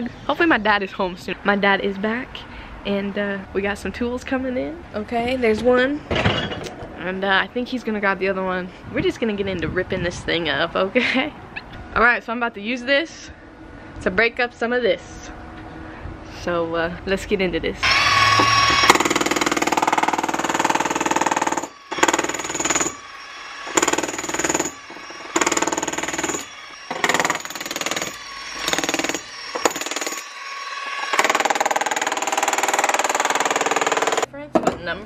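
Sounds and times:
demolition hammer on concrete: 0:17.8 - 0:34.8.

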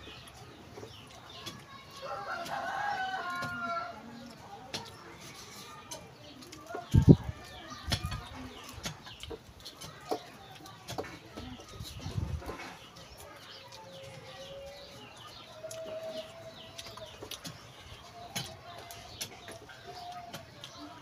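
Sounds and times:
chewing: 0:00.0 - 0:21.0
chickens clucking: 0:00.0 - 0:21.0
small birds chirping: 0:00.0 - 0:21.0.

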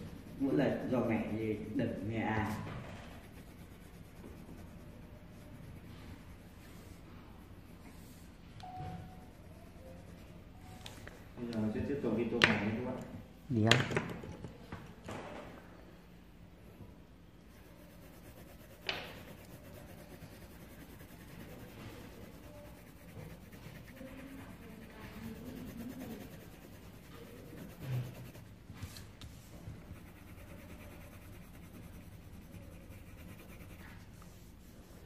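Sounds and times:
pencil scratching on paper: 0:00.0 - 0:11.3, 0:17.5 - 0:35.0.

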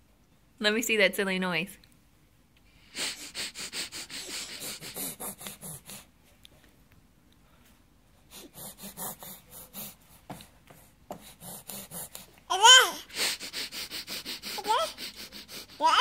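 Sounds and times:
baby huffing and snorting: 0:02.9 - 0:06.2, 0:08.3 - 0:10.5, 0:11.2 - 0:16.0.

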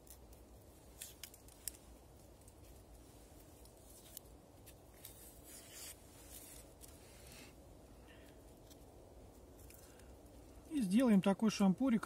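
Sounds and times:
onion skin scraping: 0:00.0 - 0:01.9, 0:03.4 - 0:07.5.

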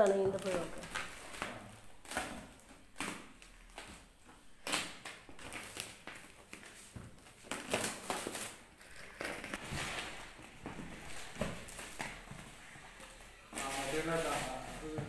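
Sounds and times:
plastic wrap crackling and rustling: 0:00.0 - 0:15.0
plastic wrap snapping: 0:00.2 - 0:12.4.

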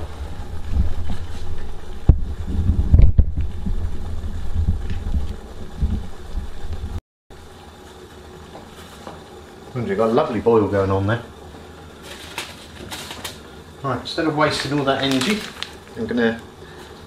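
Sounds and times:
water boiling in a metal mug: 0:07.4 - 0:17.0.

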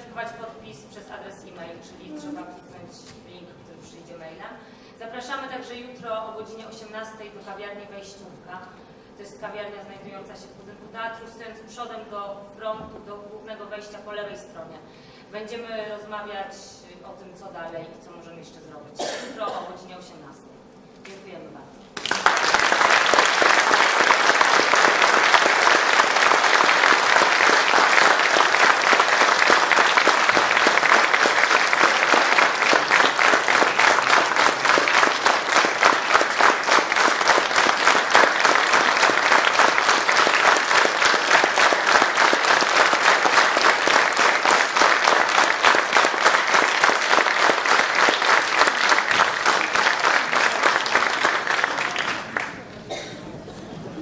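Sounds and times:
audience applauding loudly: 0:22.0 - 0:52.7.

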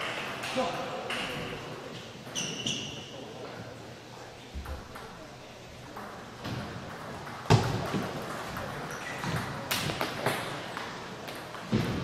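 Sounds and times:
table tennis balls clicking: 0:05.8 - 0:12.0.

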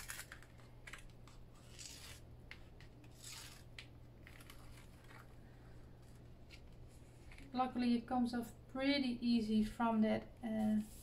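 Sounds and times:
cardstock rustling and rubbing: 0:00.0 - 0:07.6.

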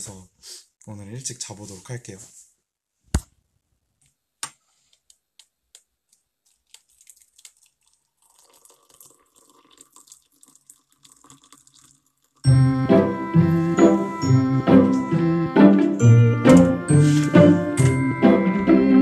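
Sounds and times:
hot water pouring into mug: 0:06.6 - 0:12.5.

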